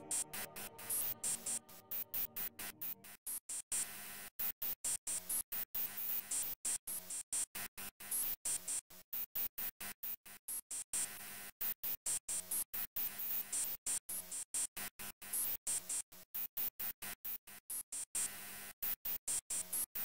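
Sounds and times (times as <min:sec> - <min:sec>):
stuttering electronic tracker music: 0:00.0 - 0:03.0.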